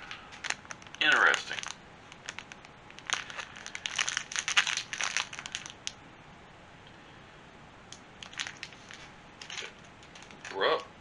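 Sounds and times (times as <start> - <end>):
plastic bag crinkling: 0.0 - 6.0, 8.2 - 10.8.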